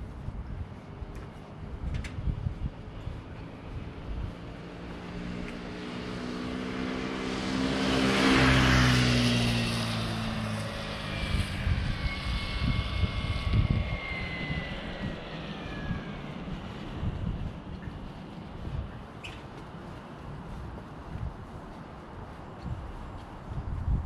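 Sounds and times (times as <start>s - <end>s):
vehicle passing by: 1.6s - 19.1s.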